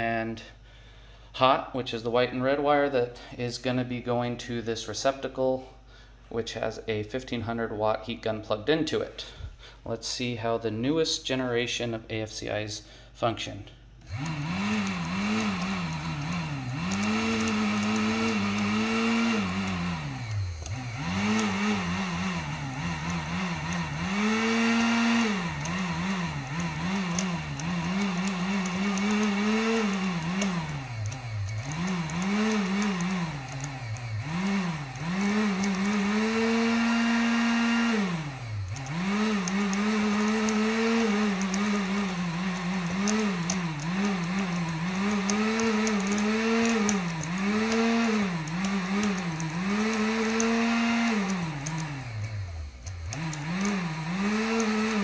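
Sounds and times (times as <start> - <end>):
heat gun fan motor running: 14.0 - 55.0.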